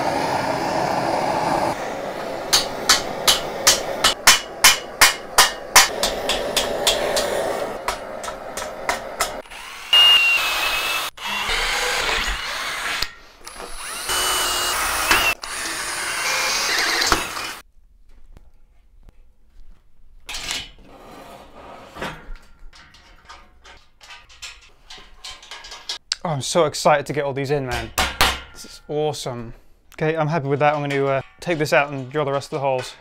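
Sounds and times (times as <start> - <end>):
hammer striking steel: 2.3 - 10.1, 27.7 - 28.9, 30.4 - 33.0
cordless drill whining through steel: 9.4 - 17.6
light metallic clicks and rattles: 22.3 - 26.2.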